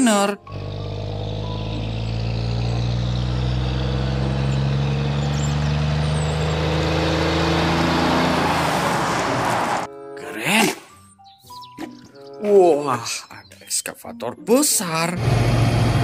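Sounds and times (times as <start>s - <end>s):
truck diesel engine passing: 0.4s - 9.9s, 15.2s - 16.0s
tyre and road noise: 0.4s - 9.9s.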